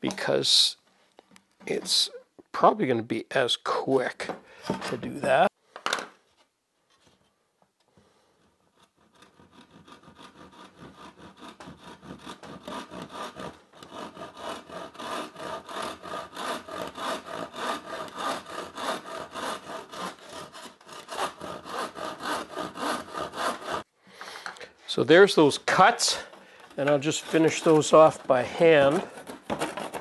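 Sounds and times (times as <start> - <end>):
handsaw cutting wood: 8.8 - 23.9, 26.1 - 30.0.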